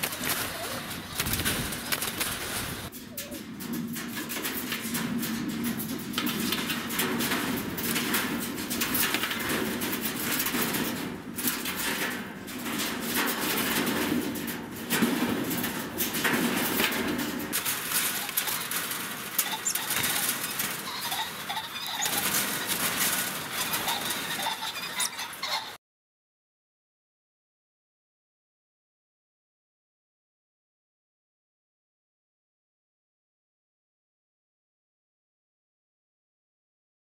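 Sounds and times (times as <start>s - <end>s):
pheasants flapping against wire: 0.0s - 25.8s
pheasant calls: 18.0s - 25.8s.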